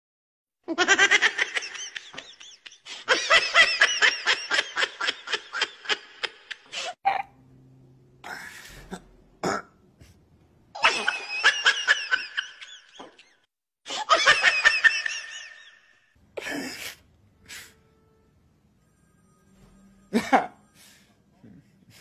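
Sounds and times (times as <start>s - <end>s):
man laughing in rapid bursts: 0.7s - 7.0s.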